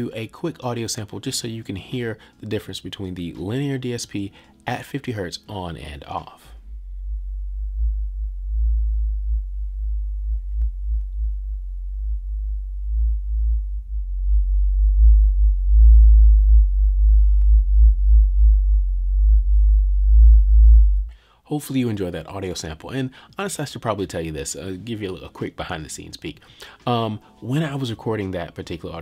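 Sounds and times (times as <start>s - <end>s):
deep sine tone hum: 6.6s - 21.2s.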